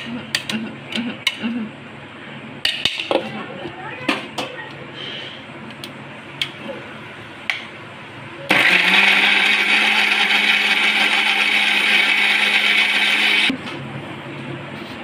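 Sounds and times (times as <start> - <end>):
electric blender running: 8.5 - 13.5.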